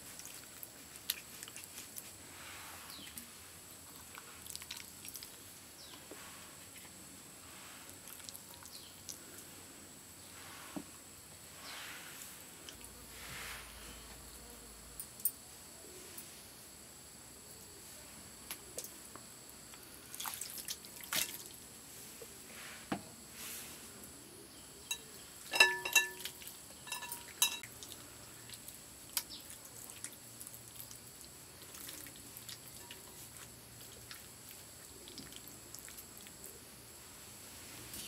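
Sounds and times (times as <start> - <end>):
glass bowl clinks: 24.9 - 26.3, 26.9 - 27.7
hands squelching in wet paste: 25.9 - 36.6.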